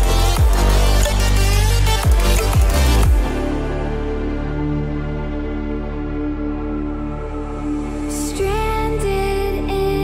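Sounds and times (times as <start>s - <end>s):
electronic dance music: 0.0s - 4.6s.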